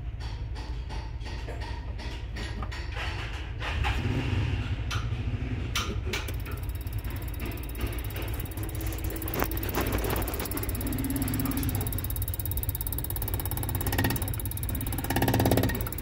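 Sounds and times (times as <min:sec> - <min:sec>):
sharp clicks: 0:06.1 - 0:16.0
injector rapid mechanical buzzing: 0:06.3 - 0:16.0.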